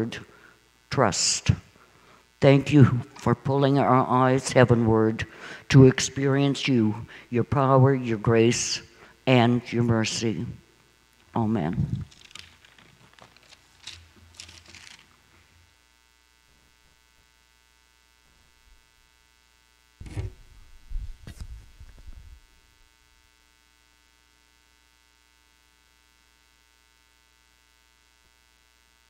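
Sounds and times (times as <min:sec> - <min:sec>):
faint electrical hum: 0:00.0 - 0:29.0
soft rustles and clicks: 0:11.9 - 0:15.5, 0:20.0 - 0:22.6
heavy low thumps and knocks: 0:20.0 - 0:22.4.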